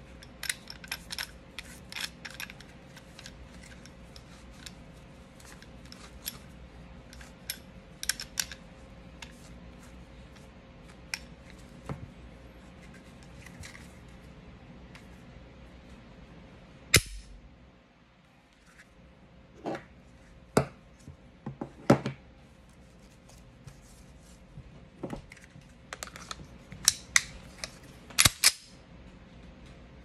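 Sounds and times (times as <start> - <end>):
pistol parts clicking: 7.1 - 8.6, 26.0 - 28.7.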